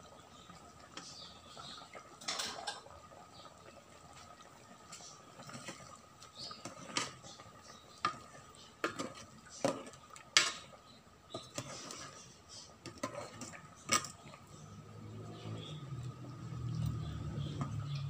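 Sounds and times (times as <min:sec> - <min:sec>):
metal ladle scraping metal pot: 0:11.3 - 0:14.3.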